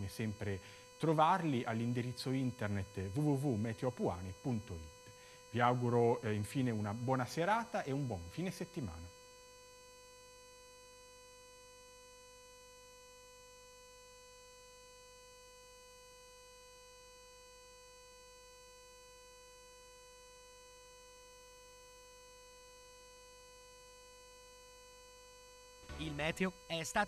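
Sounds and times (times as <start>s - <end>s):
faint electrical hum: 0.0s - 9.8s.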